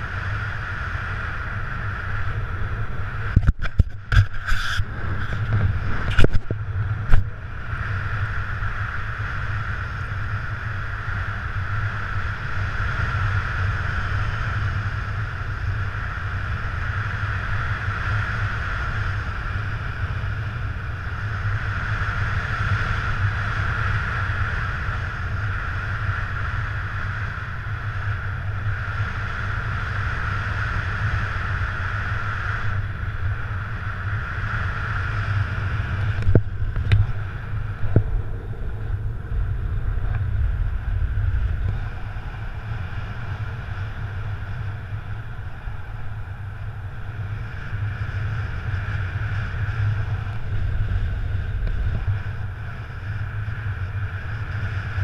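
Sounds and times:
wind rushing on microphone: 0:00.0 - 0:55.0.

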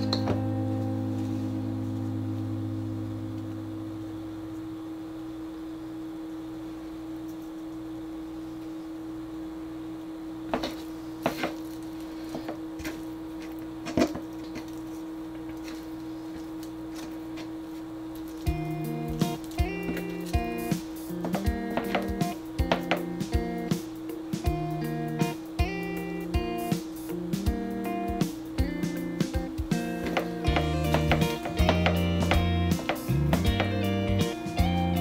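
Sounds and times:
soft guitar music: 0:00.0 - 0:04.0, 0:18.5 - 0:35.0
steady hum: 0:00.0 - 0:35.0
fingers tapping and rustling: 0:18.2 - 0:25.8, 0:27.4 - 0:35.0.

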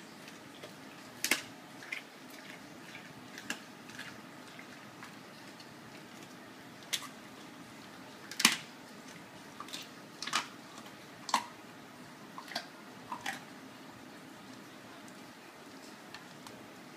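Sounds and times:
dog crunching bones: 0:00.2 - 0:07.1, 0:08.3 - 0:08.7, 0:09.6 - 0:11.6, 0:12.4 - 0:13.5.

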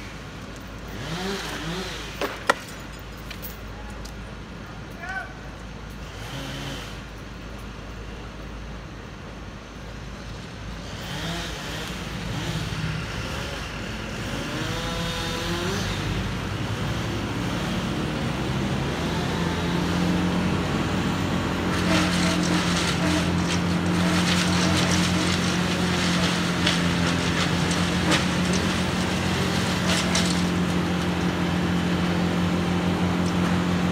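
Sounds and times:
diesel engine running: 0:05.7 - 0:33.9
short crackling noises: 0:21.7 - 0:31.3.

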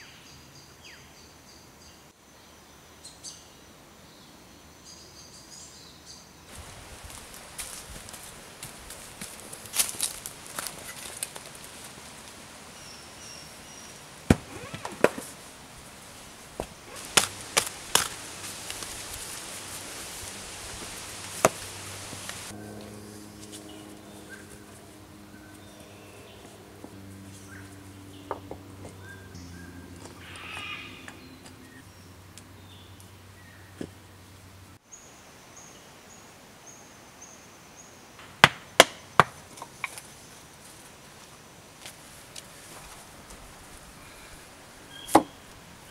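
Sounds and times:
steady high hiss: 0:01.6 - 0:28.3
stick knocking stony soil: 0:16.6 - 0:22.4.

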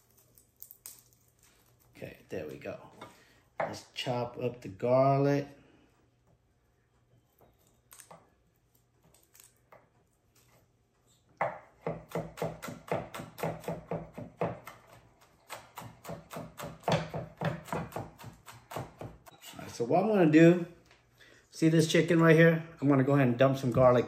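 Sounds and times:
knife chopping on wooden board: 0:11.4 - 0:19.3.

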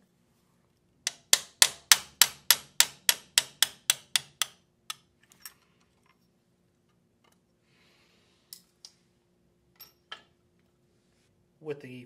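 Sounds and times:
hammer tapping metal punch: 0:01.1 - 0:05.1.

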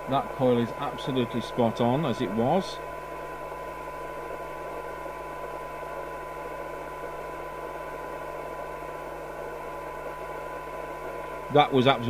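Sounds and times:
radio hiss: 0:00.0 - 0:02.8, 0:11.4 - 0:12.0
steady test tone: 0:00.0 - 0:03.5
low mains hum: 0:00.0 - 0:12.0.

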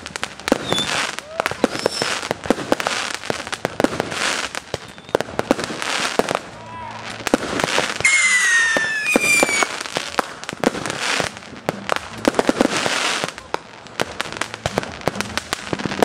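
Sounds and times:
firework bangs: 0:00.0 - 0:16.0
firework crackling: 0:00.0 - 0:16.0
whistling firework: 0:00.0 - 0:16.0.

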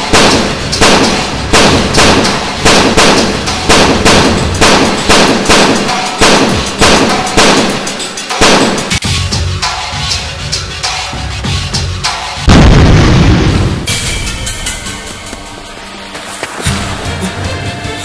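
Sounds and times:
single gunshots: 0:00.0 - 0:07.8, 0:08.4 - 0:09.0.

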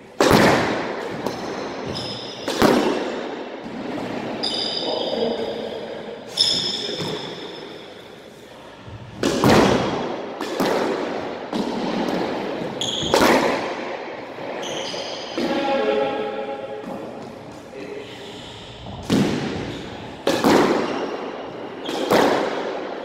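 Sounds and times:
squash ball thumping off racket and walls: 0:00.2 - 0:04.8, 0:06.4 - 0:07.5, 0:09.0 - 0:15.7, 0:16.8 - 0:17.7, 0:19.0 - 0:23.0
shoes squeaking on hardwood floor: 0:01.4 - 0:02.5, 0:06.3 - 0:07.8, 0:12.6 - 0:13.2, 0:14.5 - 0:15.4.

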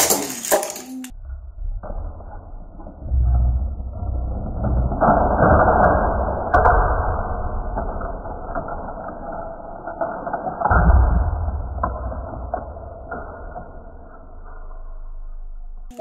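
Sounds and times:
plastic toy playset rattling and clicking: 0:00.0 - 0:01.1, 0:04.2 - 0:14.4.

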